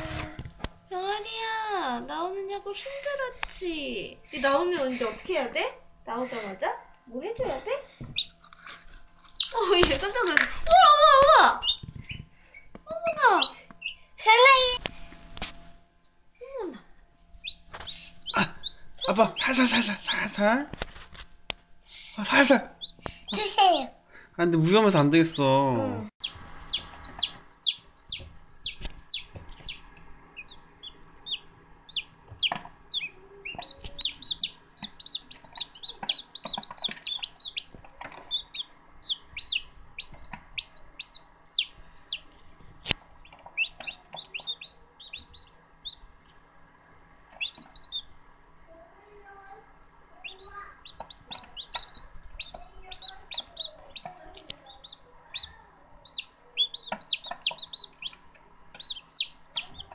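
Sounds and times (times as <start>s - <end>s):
faint steady hum: 0.0s - 59.9s
chicks peeping: 7.4s - 14.8s, 17.4s - 20.4s, 22.2s - 23.6s, 26.2s - 46.4s, 47.2s - 48.2s, 50.2s - 59.9s.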